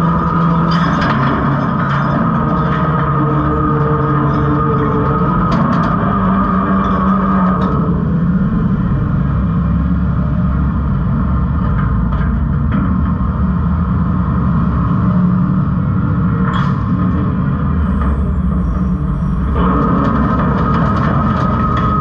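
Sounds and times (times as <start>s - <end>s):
garbage truck engine and hydraulic drone: 0.0s - 22.0s.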